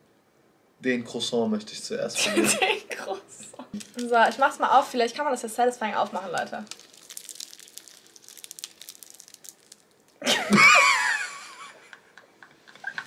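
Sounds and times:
pastry crackling as torn: 3.8 - 4.5, 6.0 - 10.2
high-pitched wavering laugh: 10.2 - 11.9.

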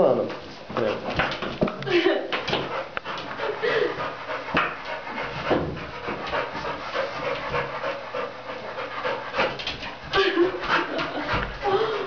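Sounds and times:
dog panting heavily: 2.4 - 12.0.

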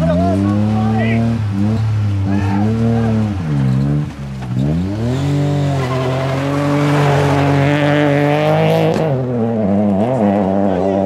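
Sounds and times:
rally car engine revving: 0.0 - 11.0
tyres sliding on gravel: 2.3 - 8.2.

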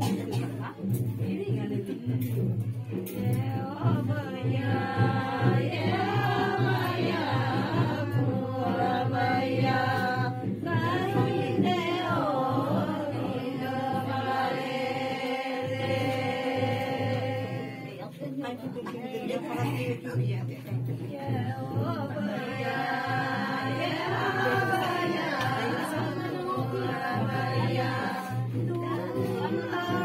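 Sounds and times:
women singing together: 0.0 - 30.0.

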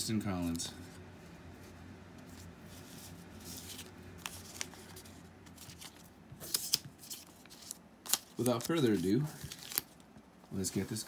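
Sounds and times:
paper slips rustling: 2.9 - 10.0
sharp paper clicks: 5.6 - 10.0.

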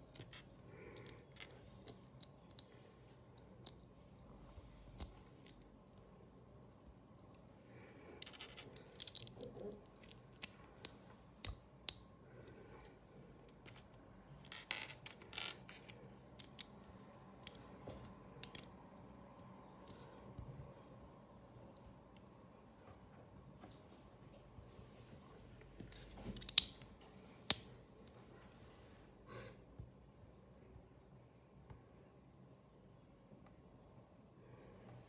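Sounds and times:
plastic bricks clicking and clattering: 8.2 - 12.0.

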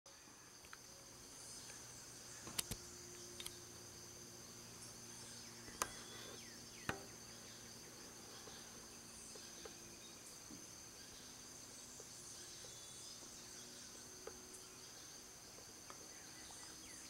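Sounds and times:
insect chorus: 0.1 - 17.0
sharp knocks: 6.9 - 7.2.

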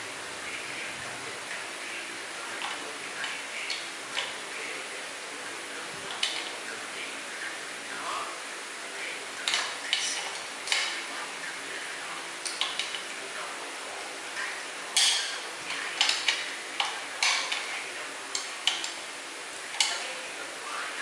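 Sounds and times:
faint steady hum: 0.0 - 21.0
screwdriver clicking on metal: 6.1 - 6.5, 9.5 - 11.0, 12.4 - 13.1, 15.0 - 17.7, 18.3 - 19.0, 19.7 - 20.0.

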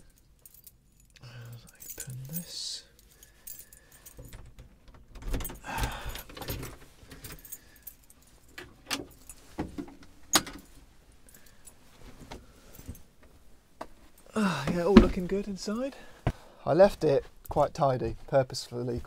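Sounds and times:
keys jangling in a lock: 0.0 - 9.6, 10.3 - 11.8
wooden doors clicking and knocking: 4.2 - 7.4, 14.6 - 15.4.

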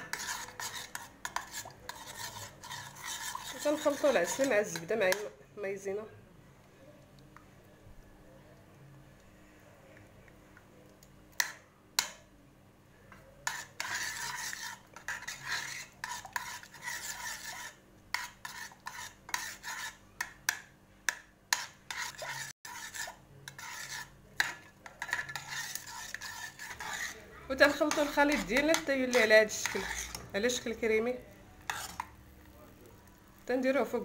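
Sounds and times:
metal spoon scraping and clinking pan: 0.0 - 5.3, 13.4 - 30.9, 31.6 - 32.2.

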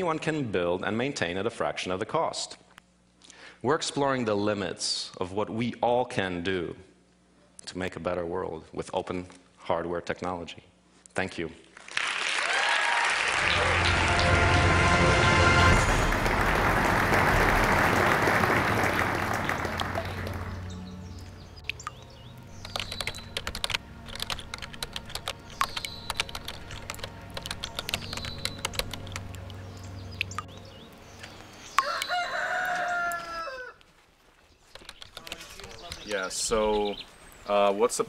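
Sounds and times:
audience applause: 11.8 - 20.9
rooster crowing: 12.4 - 13.8, 31.7 - 33.8
low steady hum: 13.4 - 32.1
quick irregular clicks: 21.6 - 29.6, 34.7 - 36.1.

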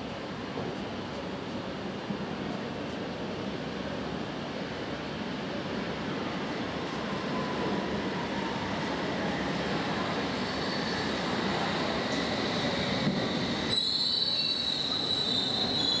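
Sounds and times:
train rumbling on rails: 0.0 - 16.0
high brake squeal: 10.4 - 16.0.

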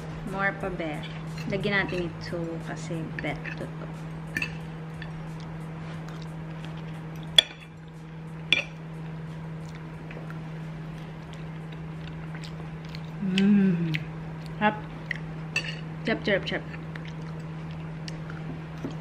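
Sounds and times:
person humming: 13.2 - 14.1.

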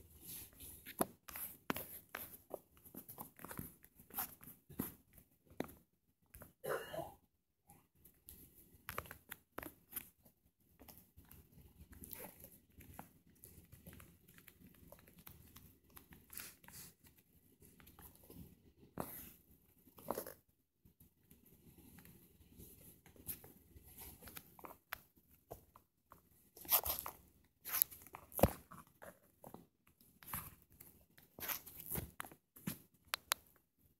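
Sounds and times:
faint clicks and crackles: 7.7 - 33.9.

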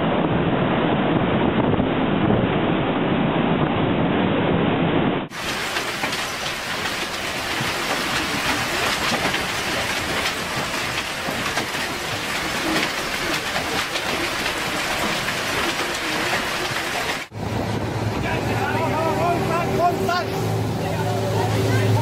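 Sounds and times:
hail on water and ground: 5.3 - 20.1.

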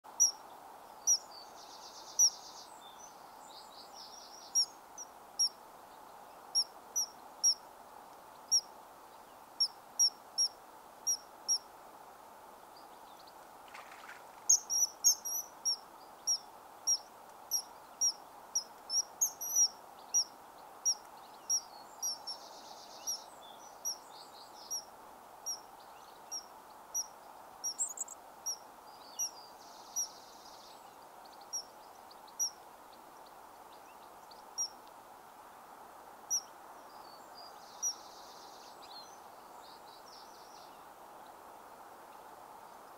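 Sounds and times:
low background noise: 0.0 - 42.9
buzzy bird trills: 27.7 - 28.2.

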